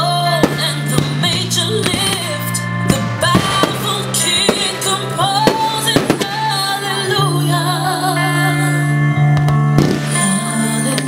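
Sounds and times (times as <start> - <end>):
song with singing voice: 0.0 - 11.0
low bass note: 0.4 - 6.4
firework shells bursting: 0.4 - 6.7.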